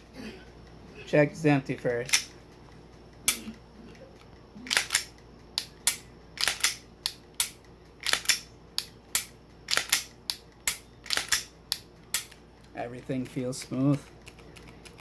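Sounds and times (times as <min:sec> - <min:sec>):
pistol sharp metallic clicks: 0:04.7 - 0:12.4.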